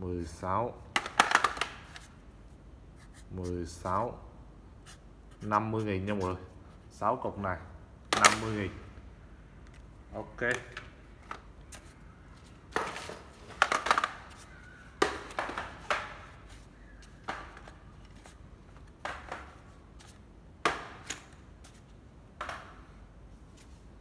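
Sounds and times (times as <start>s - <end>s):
plastic tools knocking and clattering: 0.9s - 2.0s, 12.7s - 14.4s, 15.0s - 16.4s.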